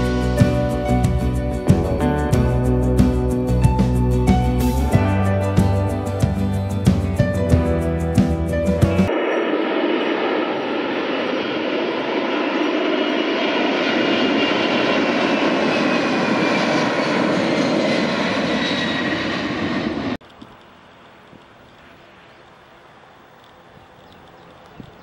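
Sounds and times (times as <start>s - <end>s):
jet engines at takeoff power: 8.9s - 25.0s.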